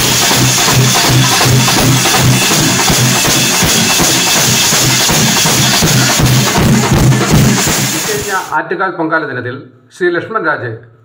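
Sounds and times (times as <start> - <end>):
drum troupe playing loudly: 0.0 - 8.6.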